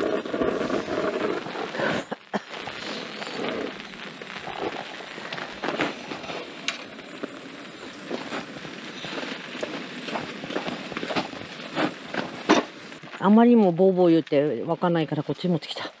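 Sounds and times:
rain pattering: 0.0s - 16.0s.

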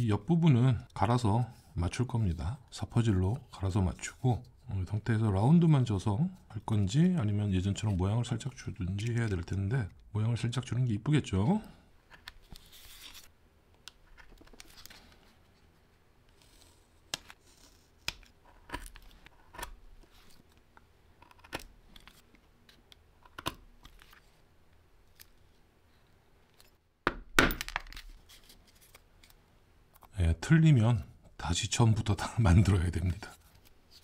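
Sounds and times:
paper rustling: 12.4s - 13.3s, 27.9s - 29.4s.

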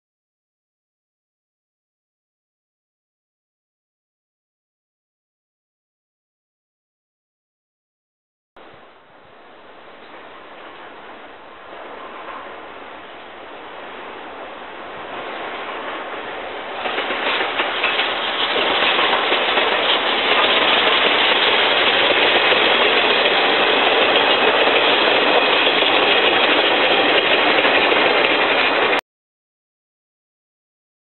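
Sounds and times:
locomotive exhaust rushing: 8.6s - 29.0s
steam train passing: 8.6s - 29.0s
wheels on rails: 8.6s - 29.0s.

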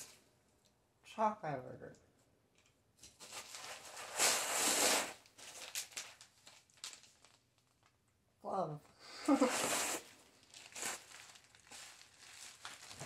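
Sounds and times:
plastic wrapping rustling: 3.0s - 8.0s, 9.3s - 13.0s
cardboard box tearing: 3.3s - 5.7s.

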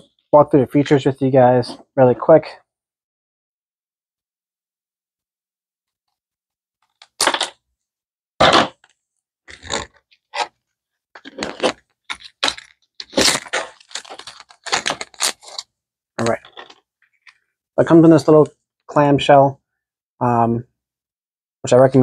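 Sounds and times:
plastic packaging crackling: 11.2s - 15.6s.

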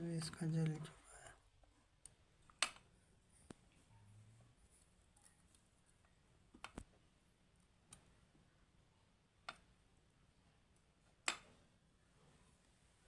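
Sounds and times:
tweezers clicking on circuit board: 2.0s - 2.9s.

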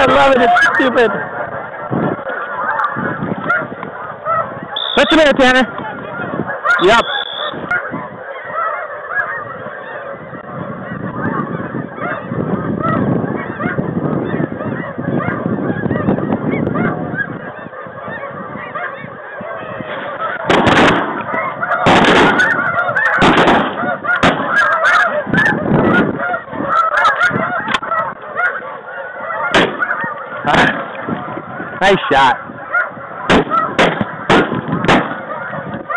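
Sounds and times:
geese honking: 0.0s - 35.9s
sharp bangs: 20.0s - 24.6s, 29.5s - 31.0s, 33.2s - 35.3s.

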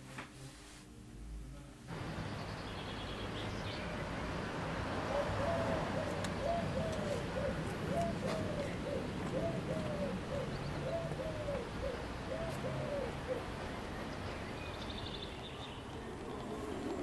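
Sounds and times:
steady outdoor hiss: 0.0s - 17.0s
dove cooing: 5.0s - 13.7s.

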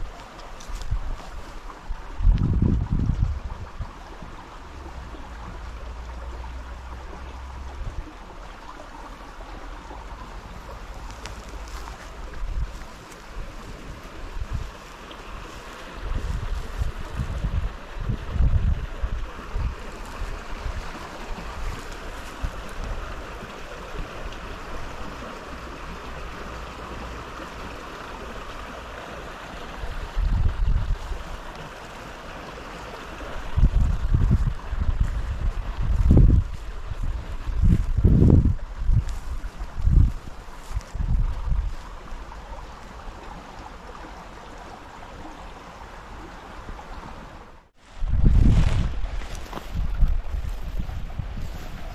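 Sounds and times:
wind buffeting microphone: 0.0s - 26.6s, 29.6s - 31.9s, 33.0s - 42.5s, 47.8s - 51.9s
river water flowing: 0.0s - 51.9s.

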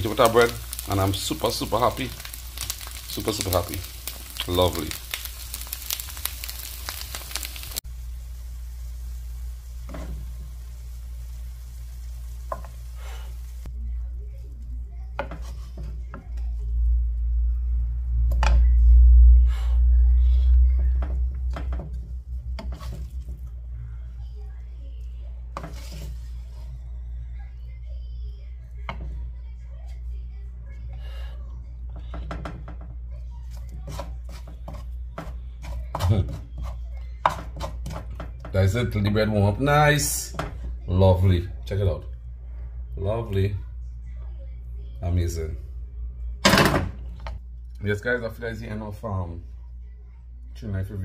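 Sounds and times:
light sizzle in frying pan: 0.0s - 17.2s
steady low hum: 0.0s - 35.9s, 40.6s - 51.0s
wooden spoon scraping frying pan: 9.2s - 13.7s, 15.2s - 16.2s, 21.0s - 23.5s, 25.5s - 26.7s, 33.4s - 38.5s
low rumble: 16.0s - 25.5s.

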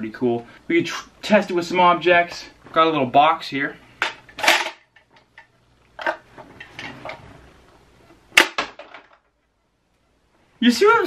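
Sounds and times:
rustling and scraping of plastic tube: 4.5s - 8.2s.

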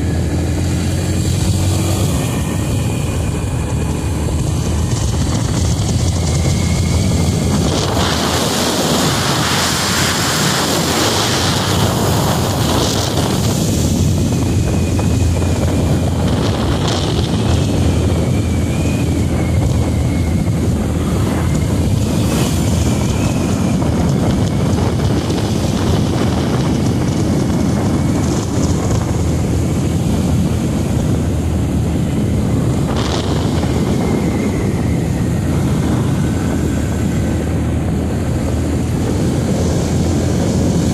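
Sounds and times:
motorcycle engine running: 0.0s - 40.9s
wind rush on microphone: 0.0s - 40.9s.

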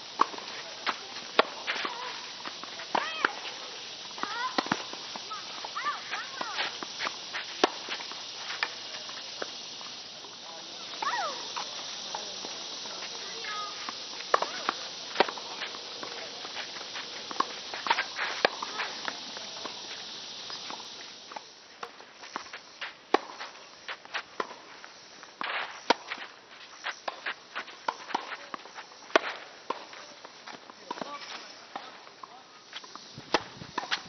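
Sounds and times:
shoe scuffs on court: 0.0s - 21.5s, 22.2s - 32.0s
steady hiss: 0.0s - 34.0s
rackets striking tennis ball: 0.2s - 3.6s, 4.2s - 9.6s, 11.0s - 19.8s.

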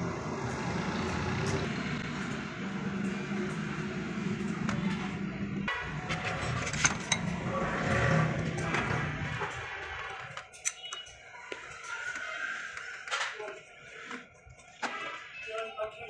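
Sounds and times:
vehicle engine hum: 0.0s - 9.5s.

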